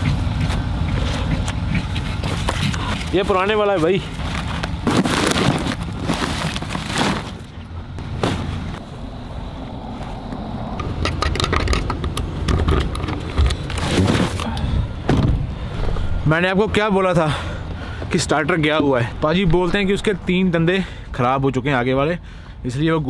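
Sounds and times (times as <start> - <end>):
footsteps crunching through snow: 0.4 - 7.5.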